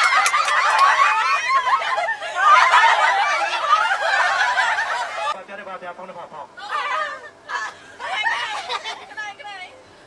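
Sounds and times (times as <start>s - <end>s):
crowd chattering and laughing: 0.0s - 5.4s.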